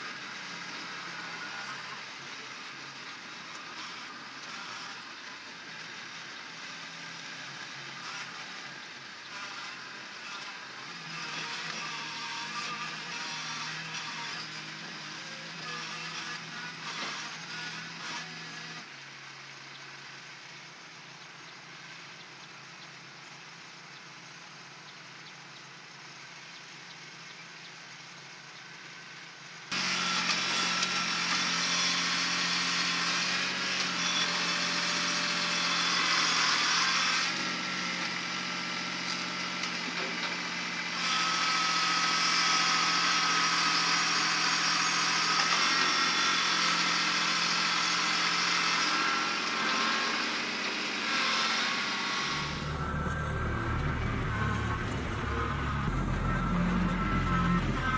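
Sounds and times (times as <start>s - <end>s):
tractor diesel engine running: 18.5s - 57.9s.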